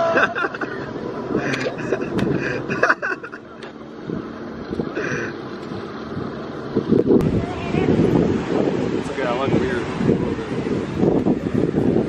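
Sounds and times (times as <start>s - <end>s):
men laughing: 0.0s - 3.7s
wind on microphone: 4.0s - 12.0s.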